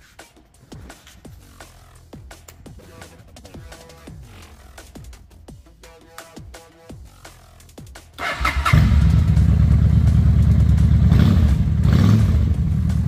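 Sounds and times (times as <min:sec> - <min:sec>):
motorcycle electric starter: 0:08.2 - 0:11.2
motorcycle engine idling: 0:08.2 - 0:13.0.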